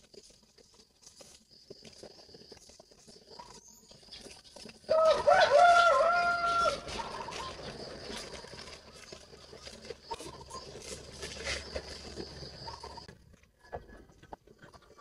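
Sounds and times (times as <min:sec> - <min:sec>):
rooster crowing: 0:04.9 - 0:07.6.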